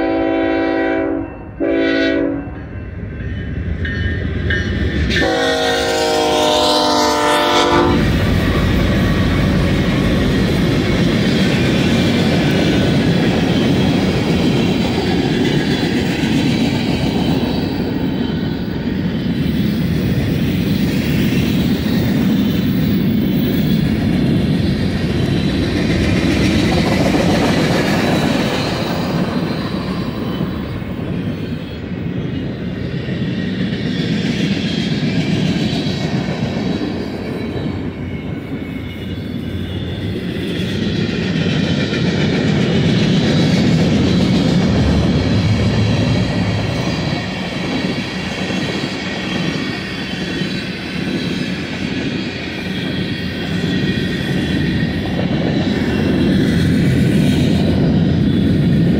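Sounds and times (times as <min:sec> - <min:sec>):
freight cars rumbling over rails: 0:07.9 - 0:20.7, 0:40.1 - 0:50.5.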